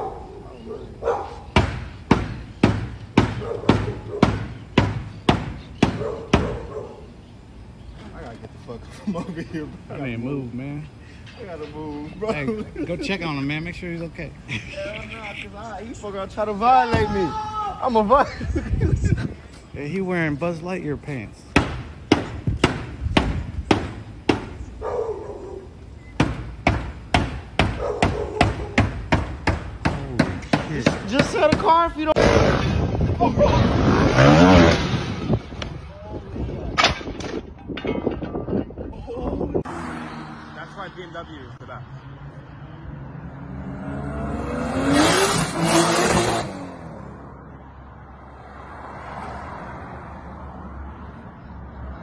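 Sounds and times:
heavy blows on car body: 0:01.5 - 0:06.6, 0:21.5 - 0:24.6.

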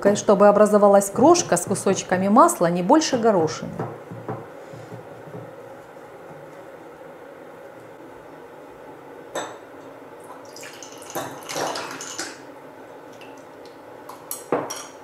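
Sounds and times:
water pouring into a glass: 0:10.3 - 0:12.3.

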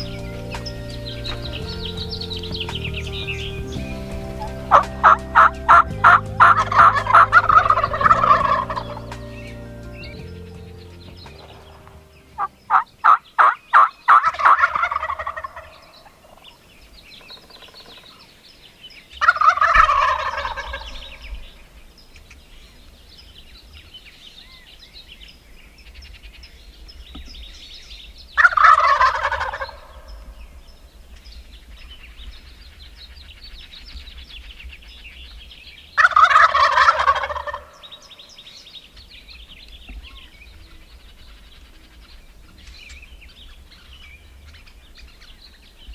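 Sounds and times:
turkeys gobbling: 0:00.0 - 0:09.4, 0:11.4 - 0:16.4, 0:19.2 - 0:21.1, 0:28.4 - 0:30.1, 0:36.0 - 0:37.9.

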